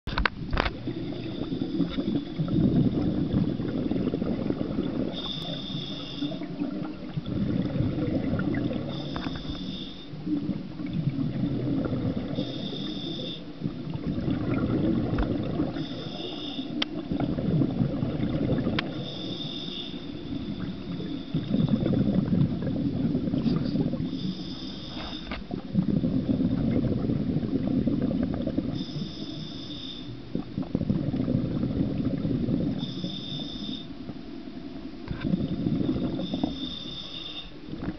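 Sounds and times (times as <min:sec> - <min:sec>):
bubbling exhaled air: 0:00.1 - 0:34.3, 0:35.0 - 0:37.9
regulator hiss on inhale: 0:01.0 - 0:06.6, 0:08.6 - 0:10.4, 0:12.1 - 0:13.7, 0:15.6 - 0:17.0, 0:18.8 - 0:22.2, 0:23.4 - 0:25.6, 0:28.7 - 0:30.4, 0:32.6 - 0:34.3, 0:35.4 - 0:37.8.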